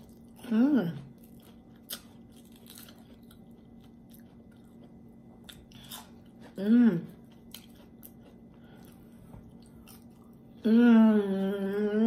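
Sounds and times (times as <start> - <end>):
chewing crispy food: 0.0 - 10.7
person humming mmm: 6.5 - 7.2, 10.6 - 12.0.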